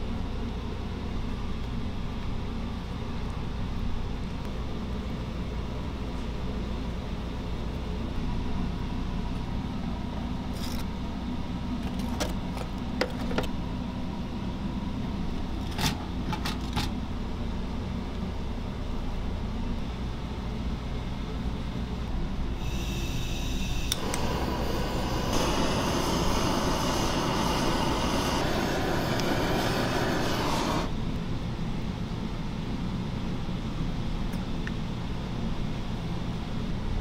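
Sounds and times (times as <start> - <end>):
kitchen machinery hum: 21.9 - 31.2.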